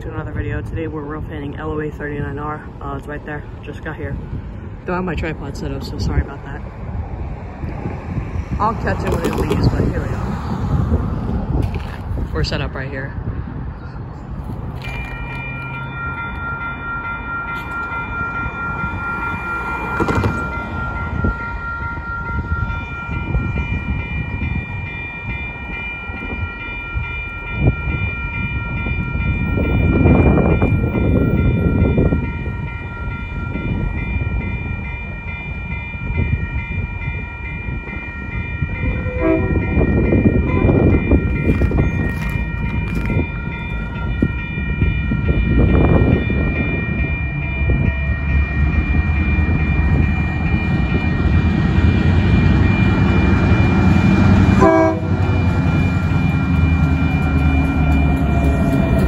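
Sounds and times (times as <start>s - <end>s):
diesel locomotive idling: 36.9s - 59.0s.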